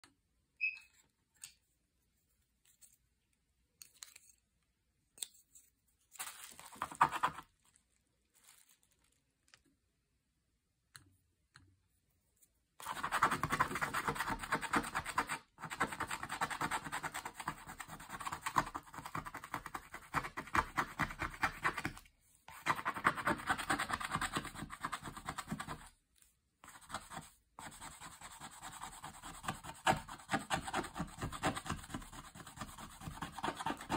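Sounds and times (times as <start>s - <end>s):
stylus scratching: 26.7s - 33.9s.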